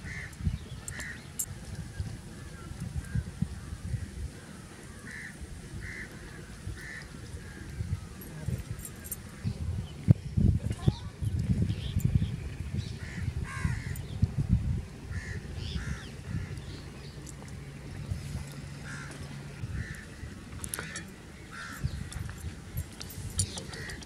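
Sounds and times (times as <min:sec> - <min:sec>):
crows cawing: 0:00.1 - 0:01.2, 0:04.8 - 0:07.7, 0:13.0 - 0:14.0, 0:15.1 - 0:16.7, 0:18.8 - 0:22.0.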